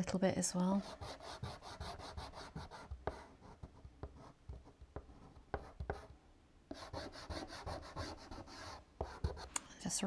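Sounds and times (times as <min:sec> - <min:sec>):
pastel scratching on paper: 0:00.8 - 0:06.1, 0:06.7 - 0:09.5.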